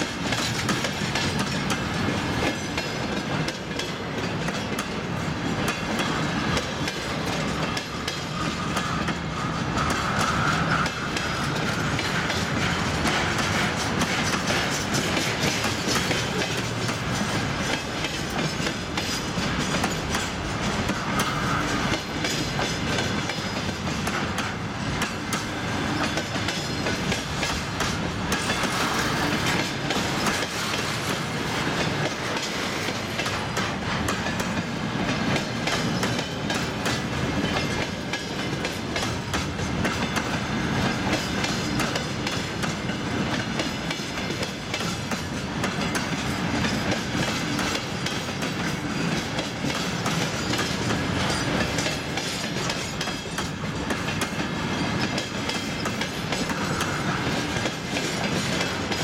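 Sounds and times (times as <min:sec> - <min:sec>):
rumble of train wagons: 0:00.0 - 0:59.0
wheels clicking over rail joints: 0:00.0 - 0:59.0.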